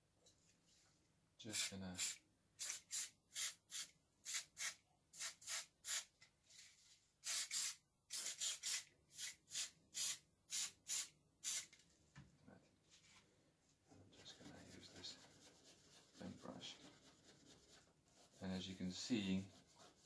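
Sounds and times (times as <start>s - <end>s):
aerosol spray hissing: 2.0s - 6.1s, 7.2s - 11.7s.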